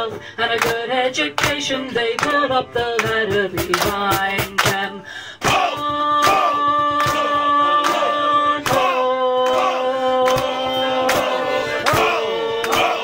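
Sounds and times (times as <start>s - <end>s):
fiddle holding long notes: 5.8s - 13.0s.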